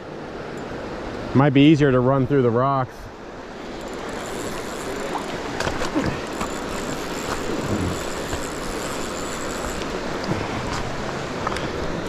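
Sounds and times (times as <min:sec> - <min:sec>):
river water rushing: 0:00.0 - 0:12.0
knocks and splashes: 0:05.0 - 0:08.5.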